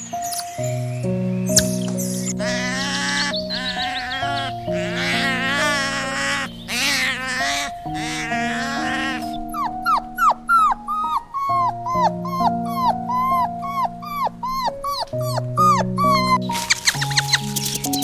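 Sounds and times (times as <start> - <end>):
background music with held notes: 0.0 - 18.0
puppies whimpering: 1.6 - 18.0.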